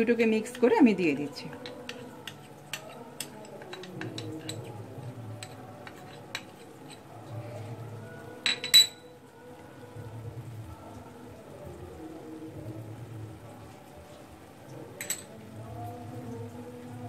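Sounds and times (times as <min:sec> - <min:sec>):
spoon clinking against bowl: 0:01.5 - 0:07.4, 0:08.4 - 0:09.2, 0:15.0 - 0:15.4.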